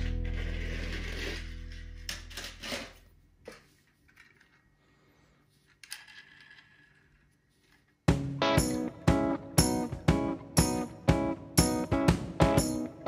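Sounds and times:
toy car handling noise: 0.0 - 4.8, 5.5 - 8.1
background music: 8.1 - 13.0.

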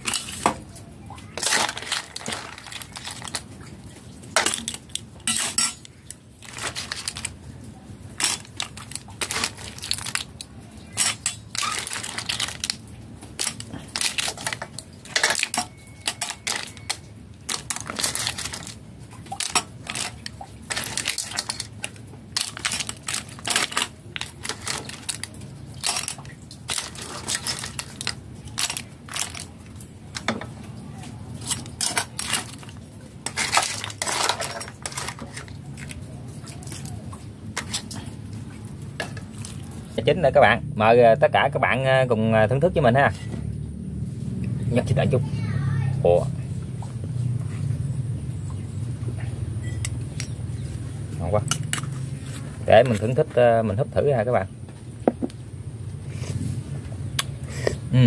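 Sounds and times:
metal ladle clinking and scraping: 0.0 - 0.6, 1.4 - 3.4, 4.4 - 7.4, 8.2 - 12.8, 13.4 - 29.5, 31.4 - 36.0, 51.4 - 53.2
shells clattering into metal bowl: 0.0 - 0.7, 1.3 - 3.6, 4.3 - 7.4, 8.1 - 30.6, 31.4 - 36.0, 51.3 - 53.2.

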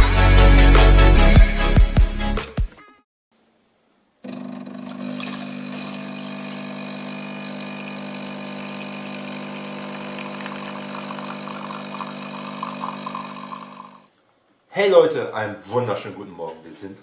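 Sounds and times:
coffee machine pump humming: 4.2 - 14.1
coffee pouring into mug: 4.8 - 14.1.

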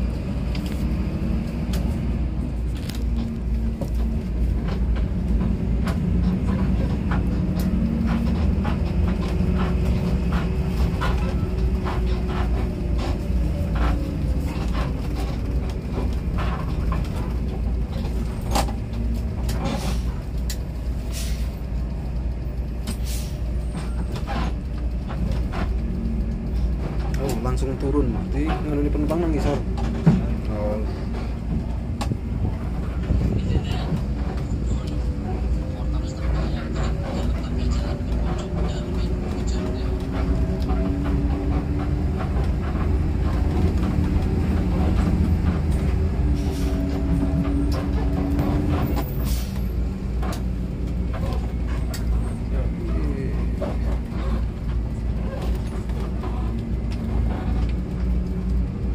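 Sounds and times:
bus diesel engine running: 0.0 - 58.9
light rattles and clicks: 0.4 - 58.9
air brakes hissing: 21.0 - 21.6, 22.9 - 23.6, 49.2 - 49.6.

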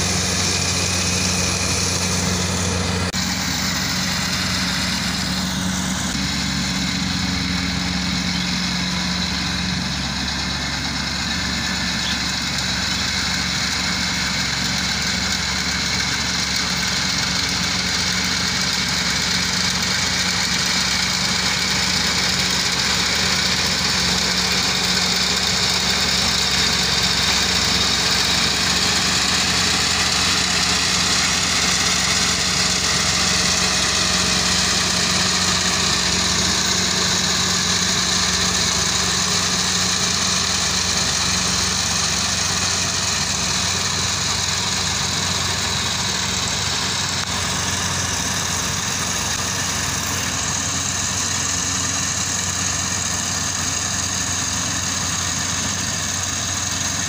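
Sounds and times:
combine harvester droning: 0.0 - 57.0.

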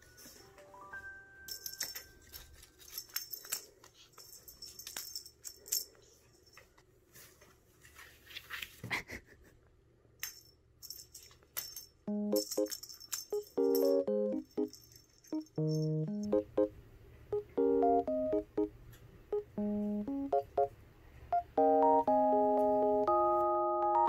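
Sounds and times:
toy rattling and jingling: 0.0 - 0.6, 1.4 - 6.8, 10.2 - 16.4
light keyboard music: 0.0 - 3.2, 12.0 - 24.0.

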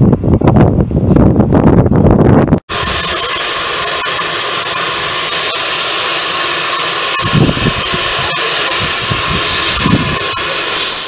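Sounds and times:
steam hissing: 2.7 - 11.0
steam locomotive exhaust chuffs: 2.7 - 11.0.

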